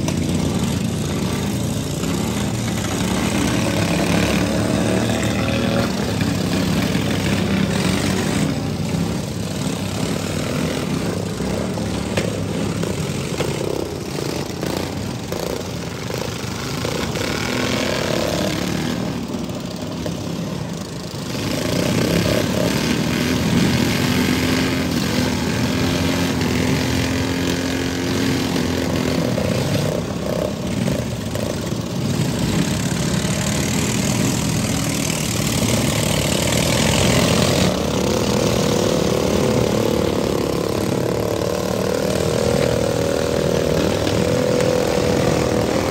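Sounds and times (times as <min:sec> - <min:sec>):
lawn mower engines revving: 0:00.0 - 0:45.9.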